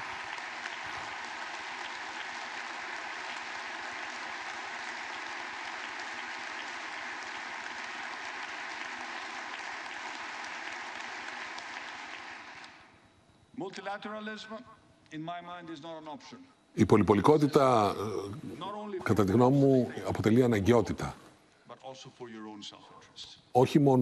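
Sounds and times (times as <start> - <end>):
audience applauding: 0.0 - 12.9.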